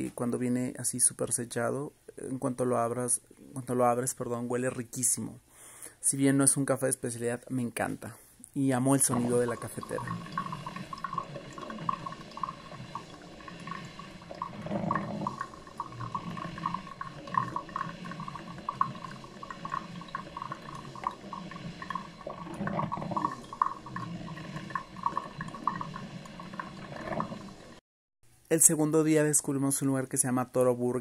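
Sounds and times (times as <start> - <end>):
coffee maker gurgling and sputtering: 8.9 - 27.8.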